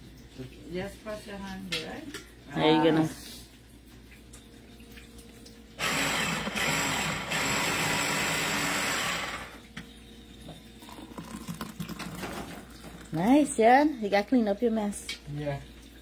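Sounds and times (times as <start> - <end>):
small electric motor running: 5.8 - 9.6.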